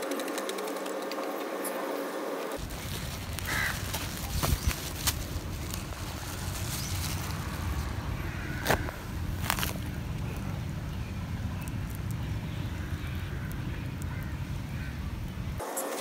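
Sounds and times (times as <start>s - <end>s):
wind rumble on microphone: 2.6s - 15.6s
crow cawing: 3.4s - 4.0s, 8.2s - 9.0s, 12.8s - 15.0s.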